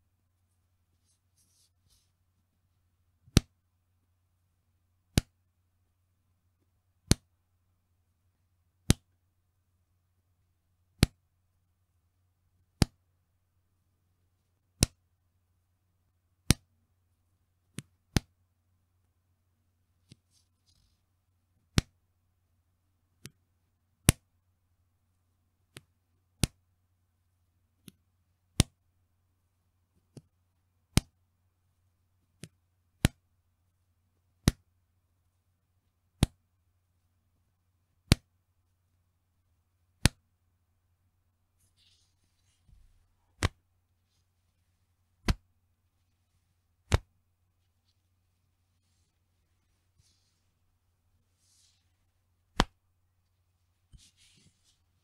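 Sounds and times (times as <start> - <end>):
elastic band snapping: 38.1 - 38.3, 40.0 - 40.2, 43.4 - 43.6, 45.2 - 45.5, 46.8 - 47.1, 52.5 - 52.8.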